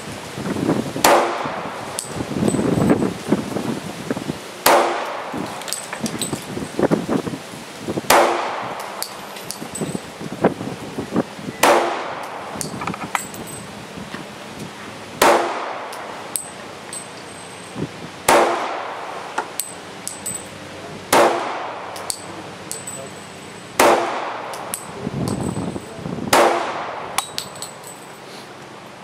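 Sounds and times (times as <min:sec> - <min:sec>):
pistol shots echoing: 0:04.6 - 0:05.8, 0:11.6 - 0:12.5, 0:15.2 - 0:16.5, 0:18.3 - 0:19.1, 0:21.1 - 0:22.3, 0:23.8 - 0:24.9, 0:26.3 - 0:27.6.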